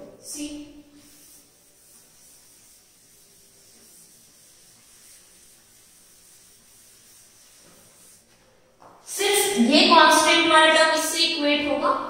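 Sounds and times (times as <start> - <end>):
steady hiss: 0.2 - 10.2
cloth rubbing on blackboard: 0.8 - 10.2.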